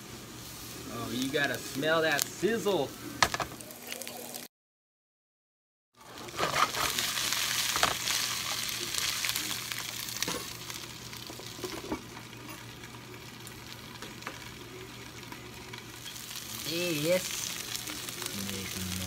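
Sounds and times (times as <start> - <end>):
beans sizzling in frying pan: 0.0 - 4.4, 6.0 - 19.0.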